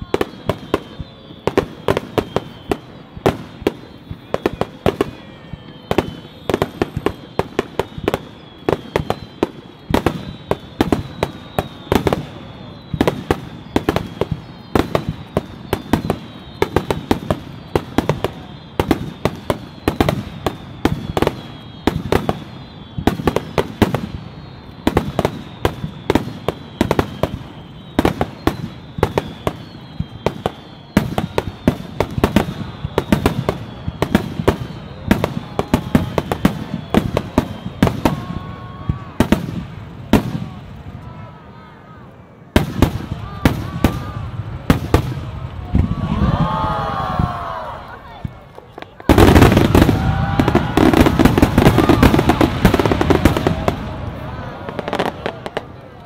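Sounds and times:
faint high whistling tone: 0.0 - 44.6
fireworks bursting: 0.0 - 56.0.

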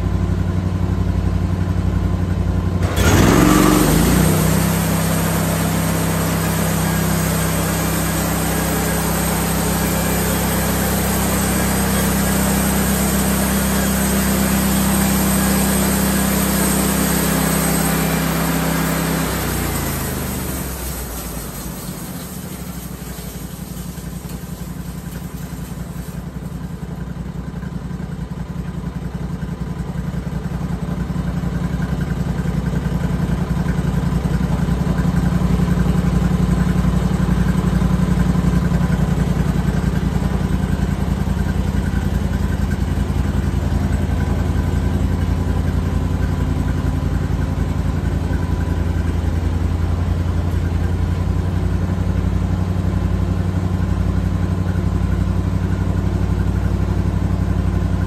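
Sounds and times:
bandsaw sawmill motor drone: 2.8 - 27.1.

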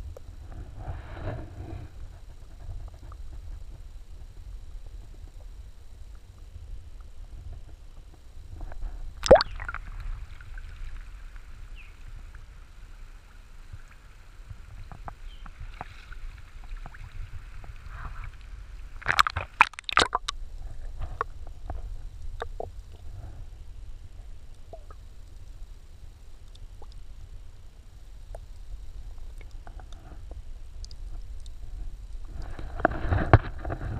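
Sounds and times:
water sloshing and gurgling: 8.6 - 23.3
water splashes: 9.2 - 20.4.

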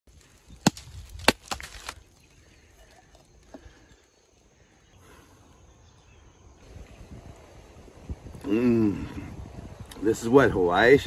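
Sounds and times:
machete chopping coconut husk: 0.6 - 2.0.

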